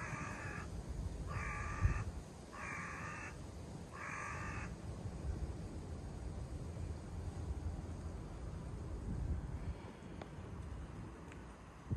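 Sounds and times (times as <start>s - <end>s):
crow cawing: 0.0s - 0.7s, 1.3s - 4.7s
wind rumble on microphone: 0.0s - 11.9s.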